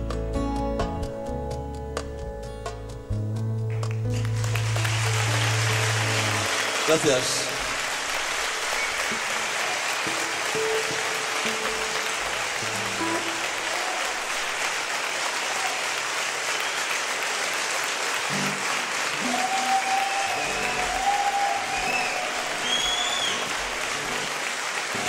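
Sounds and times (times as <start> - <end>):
acoustic guitar notes: 0.0 - 7.9, 10.0 - 13.6
audience applauding: 3.7 - 25.0
whistles and shouts: 16.6 - 16.9, 19.2 - 23.5.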